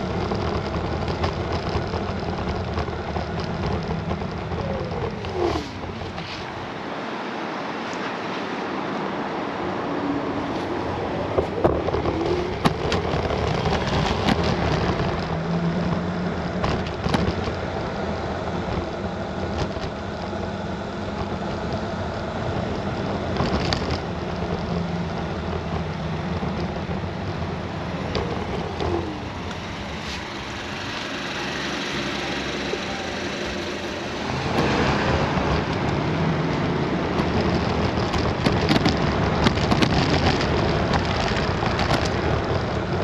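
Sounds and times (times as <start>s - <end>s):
scooter knocks and rattles: 0.0s - 6.3s, 11.3s - 16.0s, 16.6s - 17.7s, 23.2s - 29.8s, 36.6s - 43.0s
wind rush on microphone: 0.0s - 31.6s, 32.5s - 43.0s
road rumble: 0.0s - 43.0s.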